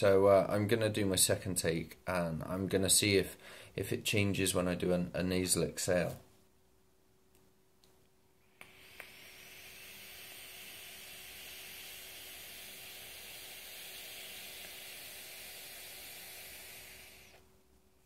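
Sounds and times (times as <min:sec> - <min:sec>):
vape coil hissing and sizzling: 0:08.5 - 0:17.4.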